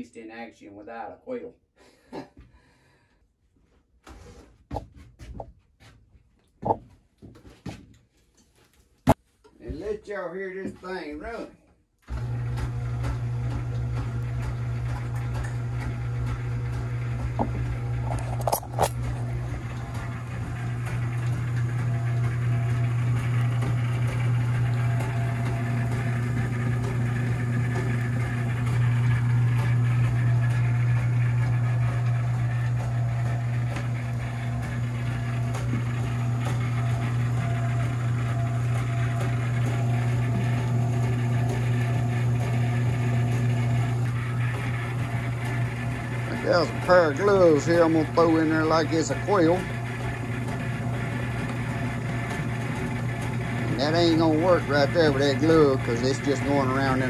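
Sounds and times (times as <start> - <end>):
motor humming: 12.0 - 57.0.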